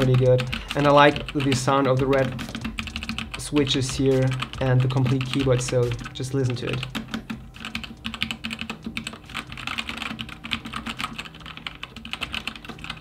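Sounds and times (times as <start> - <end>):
fast typing on mechanical keyboard: 0.0 - 13.0.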